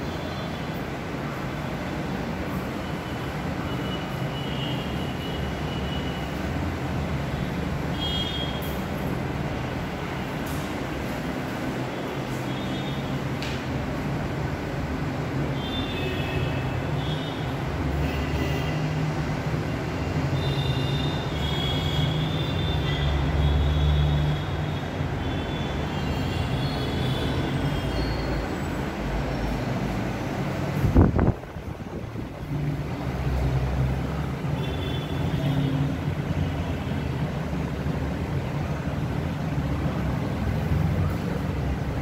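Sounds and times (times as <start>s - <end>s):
wheel squeal: 26.0s - 28.8s
low rumble of transport noise: 26.2s - 42.0s.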